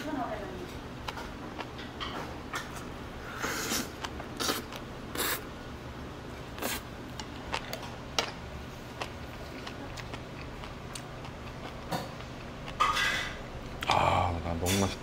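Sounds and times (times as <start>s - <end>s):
low steady hum: 0.0s - 15.0s
person eating noisily: 0.7s - 15.0s.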